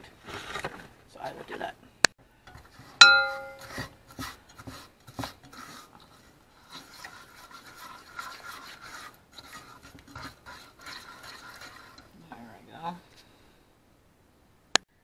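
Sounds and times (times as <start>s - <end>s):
spatula scraping saucepan: 2.5s - 12.2s
metallic clink: 3.0s - 3.7s.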